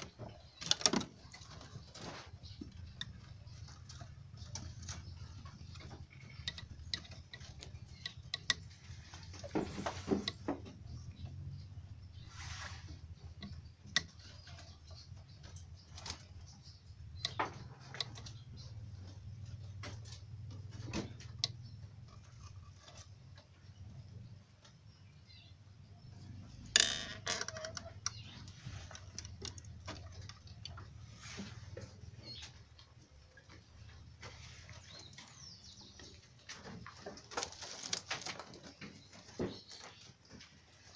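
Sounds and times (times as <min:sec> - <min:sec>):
rabbits clicking and scratching: 0:00.0 - 0:40.9
rustling scrape: 0:12.2 - 0:13.0.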